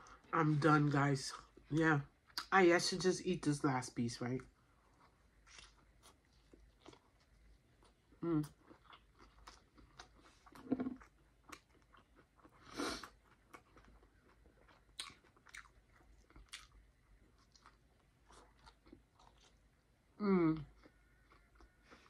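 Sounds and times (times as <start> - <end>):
close chewing with mouth clicks: 4.4 - 19.9, 20.6 - 22.0.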